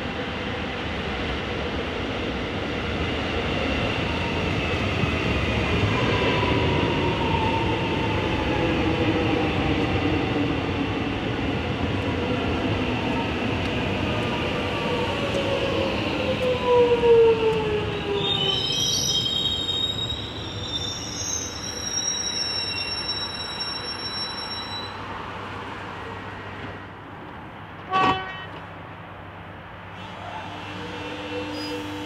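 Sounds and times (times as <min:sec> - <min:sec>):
train wheel squeal: 0:18.2 - 0:25.1, 0:30.1 - 0:32.0
train horn toot: 0:27.9 - 0:28.6, 0:30.0 - 0:32.0.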